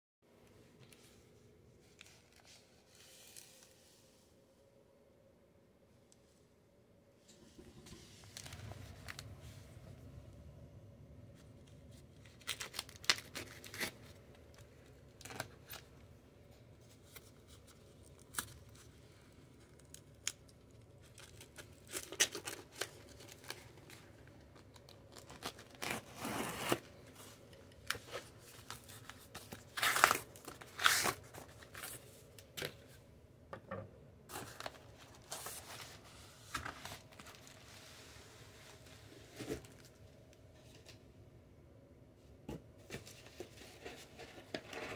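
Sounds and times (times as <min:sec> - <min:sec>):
tape tearing: 0:25.1 - 0:26.8.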